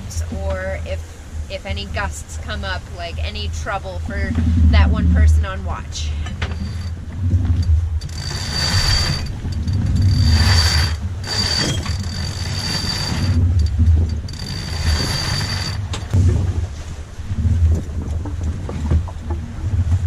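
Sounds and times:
wind on microphone: 0:00.0 - 0:20.0
winch ratcheting and whirring: 0:06.2 - 0:16.2.

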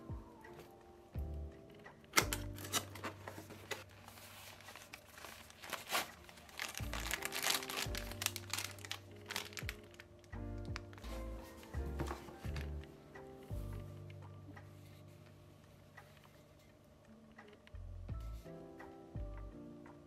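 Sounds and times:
background music with deep bass: 0:00.0 - 0:20.0
plastic wrapping crinkling: 0:02.0 - 0:12.8.

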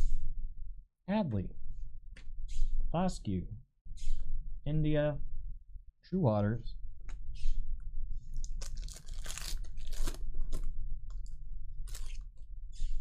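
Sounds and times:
foil wrappers crinkling: 0:08.3 - 0:12.4.

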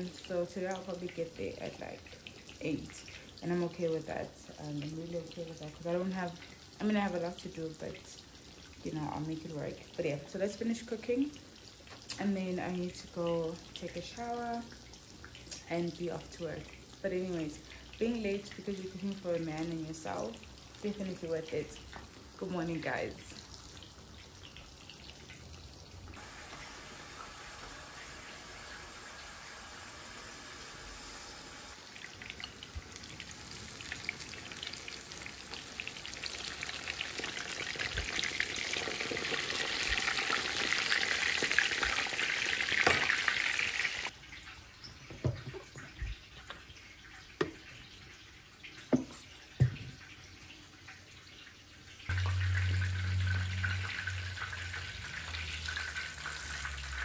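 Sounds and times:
fish sizzling in hot oil: 0:23.1 - 0:44.4, 0:51.1 - 0:57.0.

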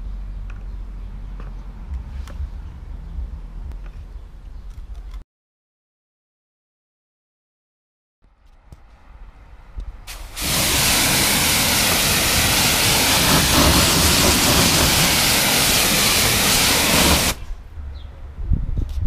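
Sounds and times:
pressure washer jet hissing: 0:10.1 - 0:17.5
pump running: 0:10.1 - 0:17.5.

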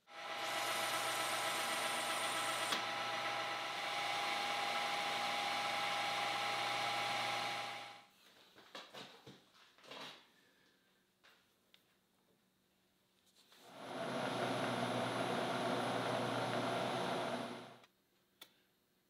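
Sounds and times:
metal lathe cutting brass: 0:00.1 - 0:08.0, 0:13.7 - 0:17.8.

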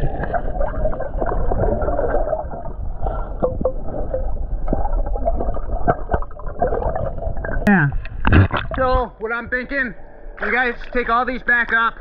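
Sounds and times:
underwater gurgling and bubbling: 0:00.0 - 0:09.0
clicks and knocks underwater: 0:03.4 - 0:09.1.

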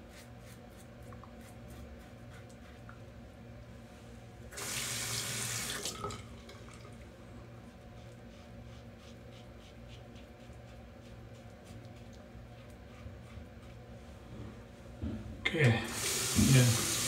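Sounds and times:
tap water running into sink: 0:04.6 - 0:06.8, 0:15.9 - 0:17.0.

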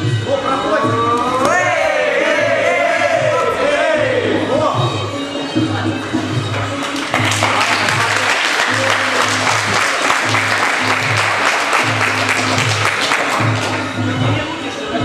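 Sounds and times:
audience applauding: 0:06.7 - 0:13.9.

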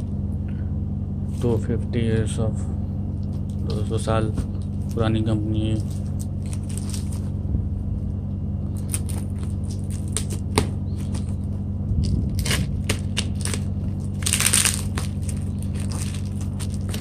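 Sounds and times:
low hum: 0:00.0 - 0:17.0
bubble wrap crinkling: 0:04.6 - 0:07.4, 0:08.7 - 0:17.0.

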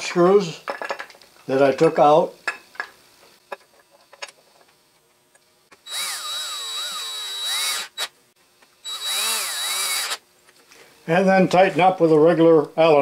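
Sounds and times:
power drill motor whine: 0:05.8 - 0:08.1, 0:08.8 - 0:10.2.

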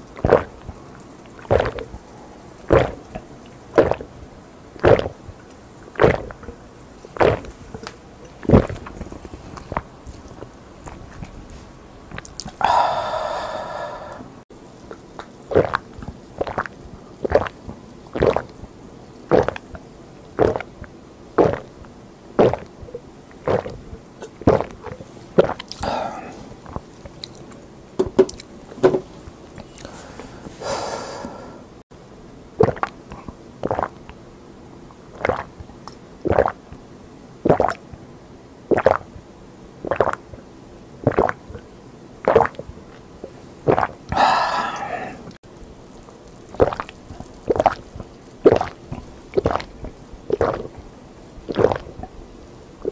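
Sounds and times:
person gulping drink: 0:00.0 - 0:04.1, 0:04.8 - 0:05.2, 0:05.9 - 0:17.6, 0:18.2 - 0:18.6, 0:19.3 - 0:19.8, 0:20.4 - 0:20.8, 0:21.4 - 0:21.8, 0:22.4 - 0:31.5, 0:32.6 - 0:34.1, 0:35.1 - 0:36.6, 0:37.5 - 0:37.8, 0:38.7 - 0:39.0, 0:39.8 - 0:40.3, 0:41.0 - 0:50.8, 0:51.4 - 0:52.2
breathy sounds: 0:12.5 - 0:14.4, 0:25.7 - 0:26.8, 0:29.6 - 0:31.8, 0:44.1 - 0:45.4.

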